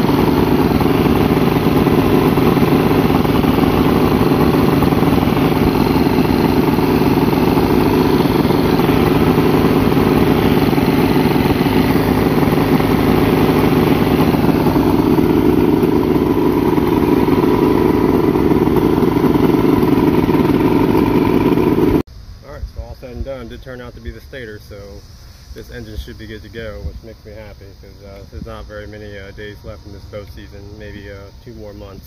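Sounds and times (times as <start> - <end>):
outboard engine running: 0.0 - 22.0.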